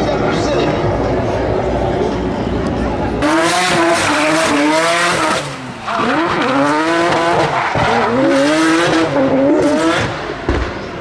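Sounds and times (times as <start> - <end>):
car engine revving: 0.2 - 11.0.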